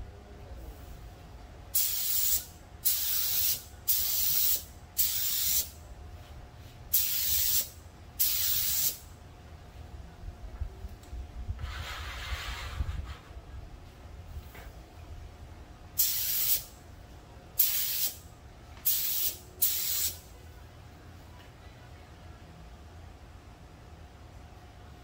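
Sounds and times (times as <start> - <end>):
low steady rumble: 0.0 - 1.8, 9.0 - 16.0
spray gun hissing: 1.8 - 5.7, 6.9 - 9.0, 16.0 - 16.6, 17.6 - 18.2, 18.8 - 20.2.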